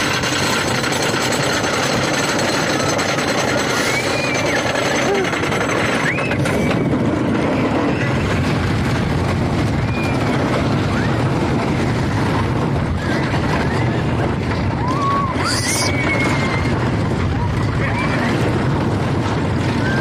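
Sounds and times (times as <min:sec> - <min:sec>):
roller coaster rumble: 0:00.0 - 0:20.0
wind on microphone: 0:00.0 - 0:20.0
riders screaming: 0:14.8 - 0:17.1.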